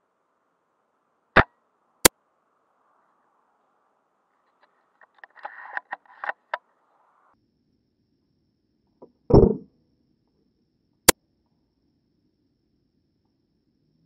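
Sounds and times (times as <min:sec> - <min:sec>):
airsoft rifle firing thump: 0:09.3 - 0:09.6.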